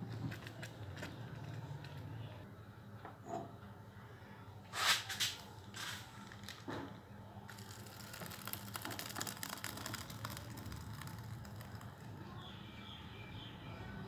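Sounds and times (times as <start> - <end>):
pot scraping: 7.5 - 12.2.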